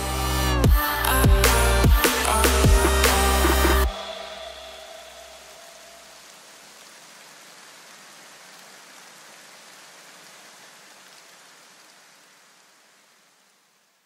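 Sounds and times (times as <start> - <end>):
hissing electronic music wash: 0.0 - 6.5.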